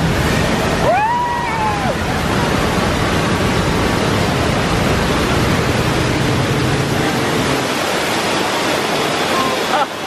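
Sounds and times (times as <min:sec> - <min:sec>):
deep rumble: 0:00.0 - 0:09.3
rushing water: 0:00.0 - 0:10.0.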